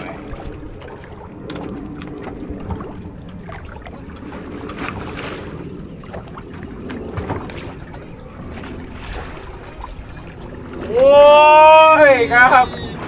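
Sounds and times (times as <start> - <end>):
sea water lapping: 0.0 - 13.0
wind on microphone: 0.0 - 13.0
knocks against hull: 6.9 - 7.8.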